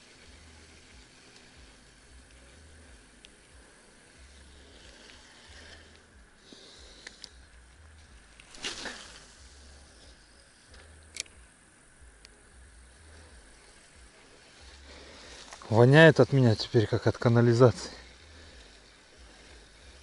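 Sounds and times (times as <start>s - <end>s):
faint low rumble: 0.0s - 20.0s
fishing rod swishing: 8.4s - 9.9s.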